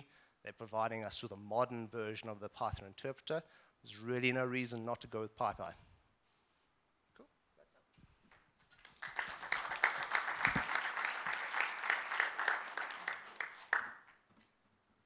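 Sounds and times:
audience applauding: 8.7s - 14.2s.

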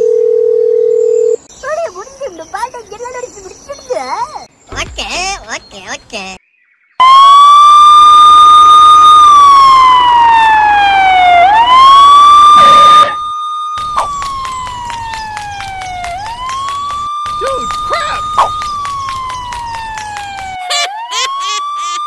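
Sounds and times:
police siren wailing: 7.0s - 22.0s.

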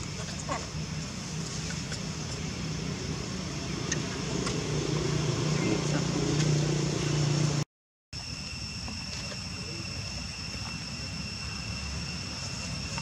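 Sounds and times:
low motor-like hum: 0.0s - 7.6s
high-pitched whine: 8.2s - 13.0s.

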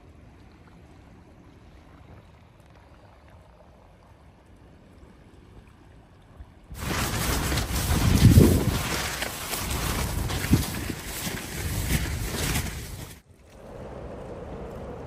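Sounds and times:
water lapping at rocks: 0.0s - 13.7s
low wind rumble: 0.0s - 15.0s
wind buffeting a tent: 6.7s - 15.0s.

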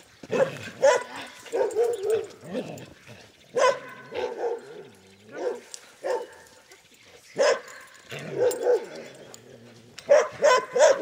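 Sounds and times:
dog barking: 0.3s - 2.3s, 3.5s - 6.3s, 7.4s - 9.0s, 10.1s - 11.0s.

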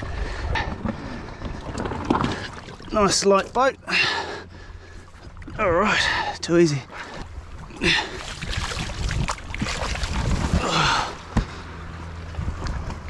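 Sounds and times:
water sloshing against boat: 0.0s - 13.0s
boat hull rubbing: 0.2s - 13.0s.

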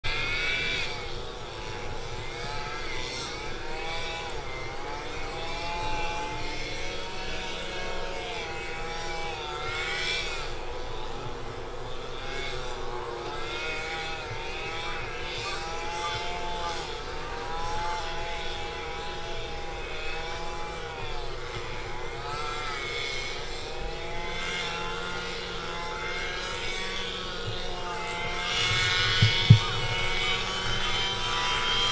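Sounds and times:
motor engine drone: 0.1s - 31.9s.

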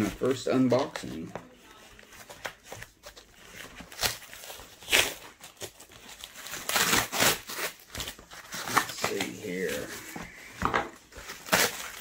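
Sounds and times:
cardboard tearing: 1.9s - 10.4s, 11.0s - 12.0s
packing tape slit with knife: 3.8s - 9.3s, 11.2s - 12.0s.

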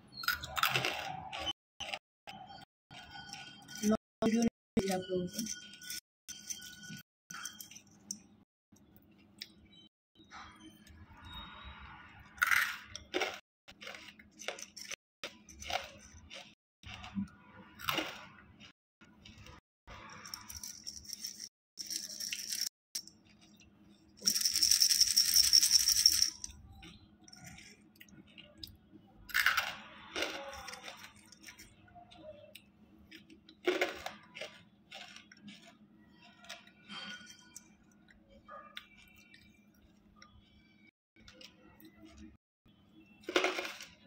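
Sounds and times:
crystals crunching when chewed: 12.4s - 37.8s.

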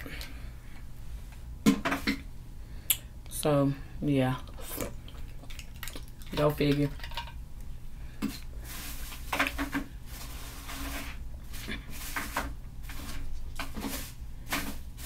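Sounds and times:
steady low hum: 0.0s - 15.0s
objects being handled: 8.2s - 15.0s.

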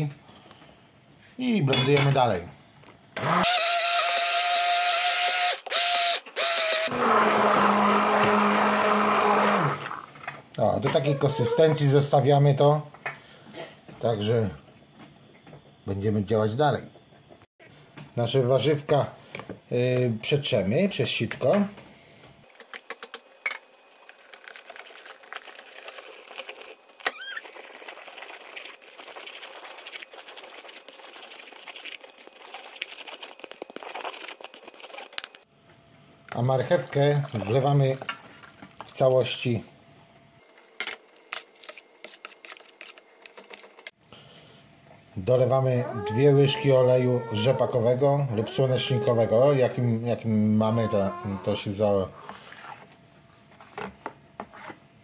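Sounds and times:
immersion blender running: 3.2s - 10.1s
wooden spoon scraping puree through sieve: 27.4s - 35.3s, 41.6s - 43.7s, 52.2s - 53.0s.

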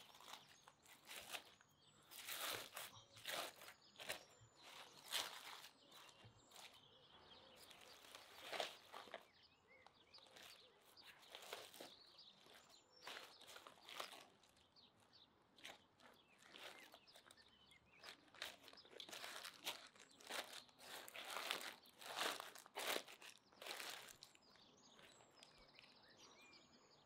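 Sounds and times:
paper and foil crinkling: 0.0s - 6.8s, 18.0s - 24.4s.

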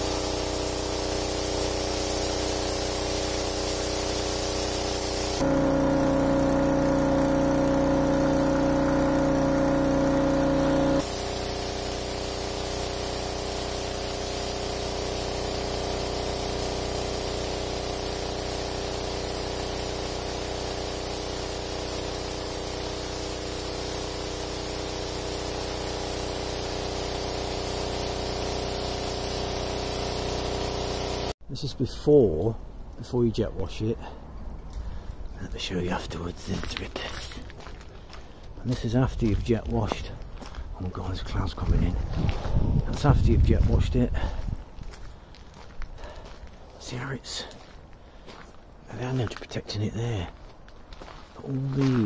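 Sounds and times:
water spray hissing on steel: 0.0s - 5.4s, 11.0s - 31.4s
pressure washer engine hum: 0.0s - 31.4s.

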